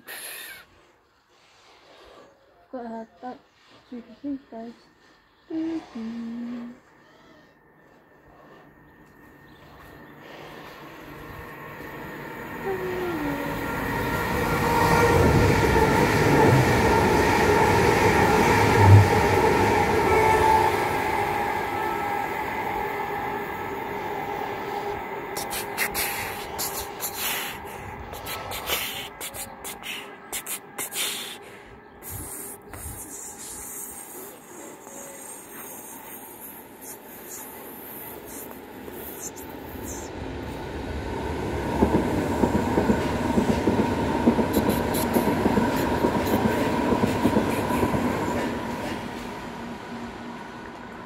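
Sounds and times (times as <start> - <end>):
electric train rumble and whine: 2.8 - 51.0
train clicks and knocks: 41.8 - 49.3.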